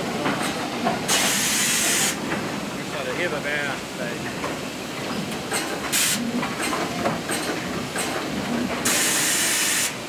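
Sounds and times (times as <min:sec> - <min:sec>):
hiss of air: 0:01.1 - 0:02.2, 0:05.9 - 0:06.2, 0:08.8 - 0:10.0.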